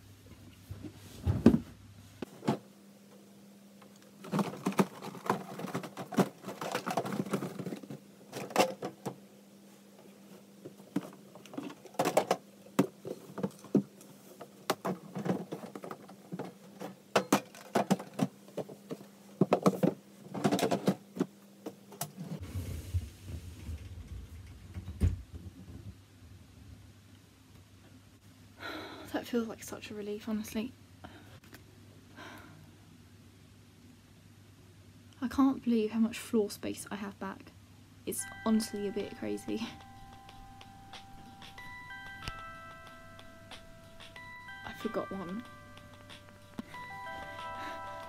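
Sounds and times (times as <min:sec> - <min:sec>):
boxes knocking and scraping: 0:04.2 - 0:09.1, 0:14.7 - 0:21.3.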